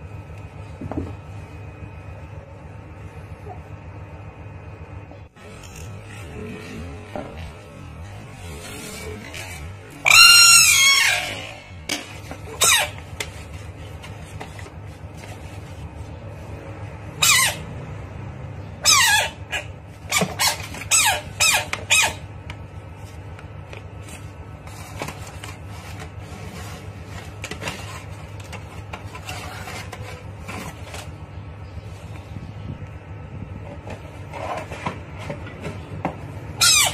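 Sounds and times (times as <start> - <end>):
low hum: 0.0 - 36.6
high-pitched animal squeals: 8.7 - 11.8.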